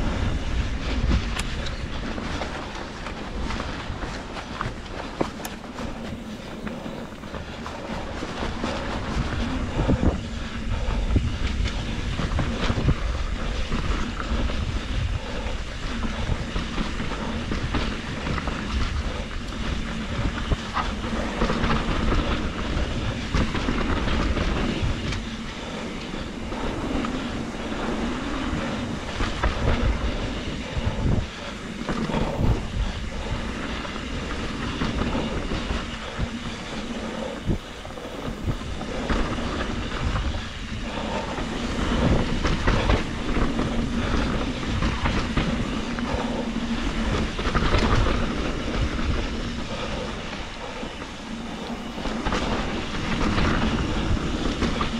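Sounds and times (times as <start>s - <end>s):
bike clicks and rattles: 0.0s - 54.9s.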